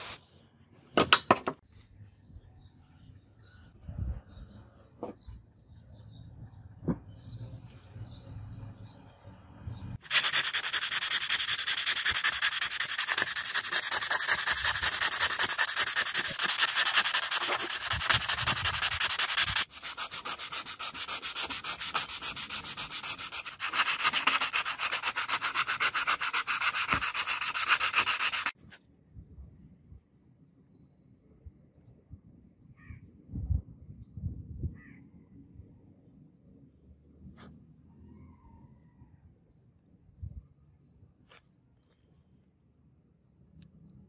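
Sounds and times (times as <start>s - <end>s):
sandpaper rubbing on metal: 10.0s - 28.6s.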